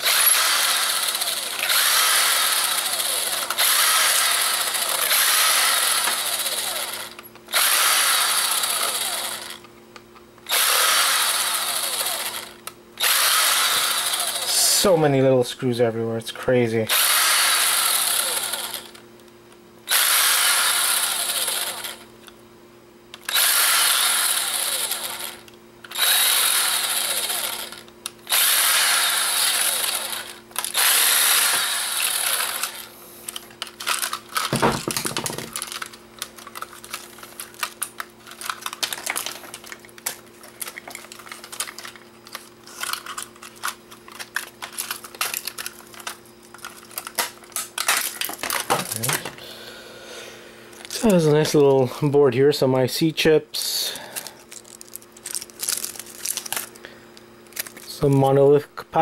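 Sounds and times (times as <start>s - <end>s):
power screwdriver whirring: 0.0s - 9.6s, 10.4s - 14.5s, 16.9s - 19.0s, 19.9s - 22.0s, 23.2s - 35.6s
plastic casing parts rattling: 33.3s - 49.4s, 54.5s - 56.8s.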